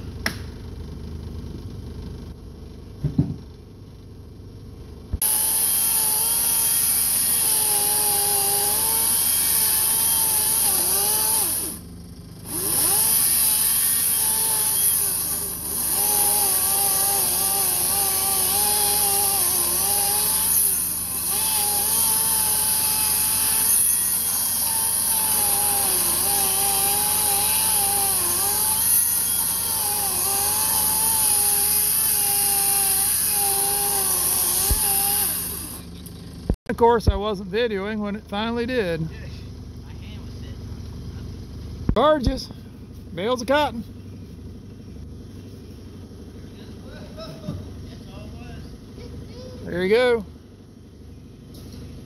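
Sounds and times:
chainsaw cutting wood: 5.2s - 36.2s.

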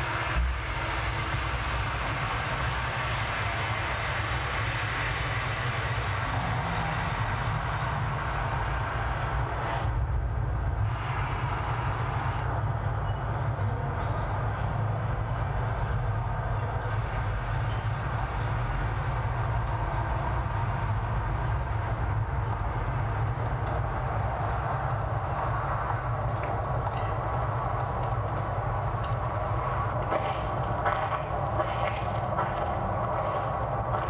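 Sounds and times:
highway traffic rumble: 0.0s - 34.0s.

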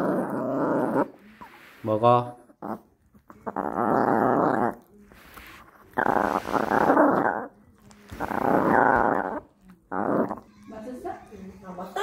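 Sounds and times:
small dog growling: 0.0s - 1.2s, 2.3s - 4.9s, 5.7s - 10.8s.

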